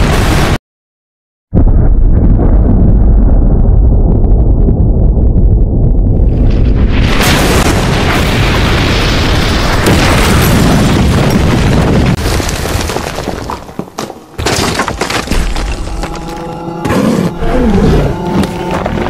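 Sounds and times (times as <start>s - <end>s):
cartoon explosion boom with rumble: 1.5s - 12.2s.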